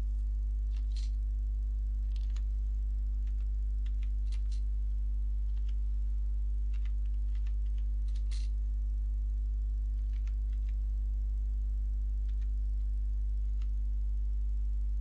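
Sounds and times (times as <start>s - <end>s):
steady low hum: 0.0s - 15.0s
keyboard keystrokes clicking: 2.1s - 2.5s.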